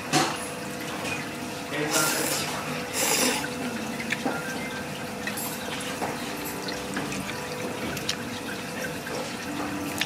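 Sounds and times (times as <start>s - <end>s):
water running from tap: 0.0s - 10.0s.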